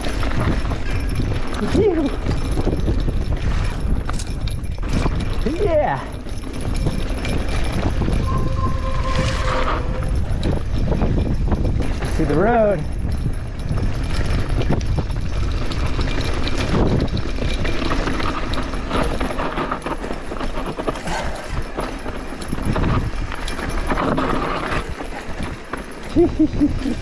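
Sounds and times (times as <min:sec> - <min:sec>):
bike clattering over bumps: 0:00.0 - 0:08.6, 0:09.2 - 0:27.0
low rumble: 0:08.0 - 0:11.3
bike tyres crunching on dirt: 0:15.2 - 0:26.2.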